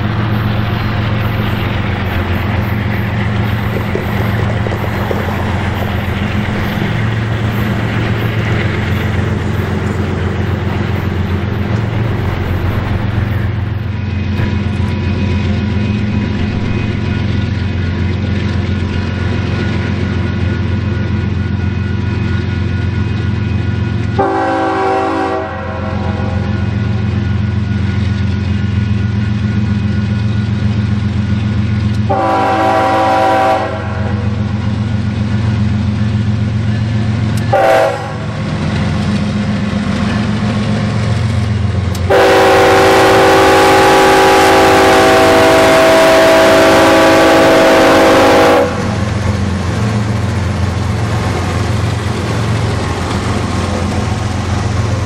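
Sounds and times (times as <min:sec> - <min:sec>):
locomotive air horn blasts: 0:24.2 - 0:26.4, 0:32.1 - 0:34.4, 0:37.5 - 0:38.3, 0:42.1 - 0:49.0.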